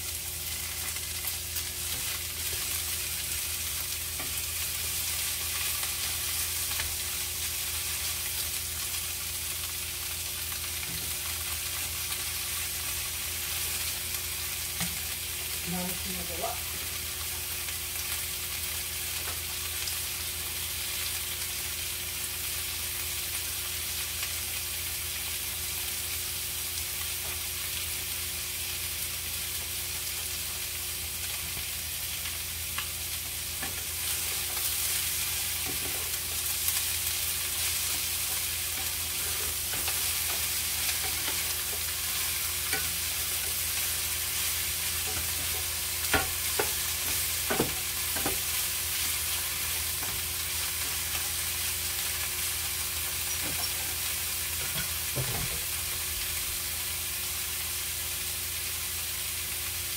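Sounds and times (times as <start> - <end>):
food sizzling in a frying pan: 0.0 - 59.9
wooden spatula scraping a pan: 37.5 - 43.6.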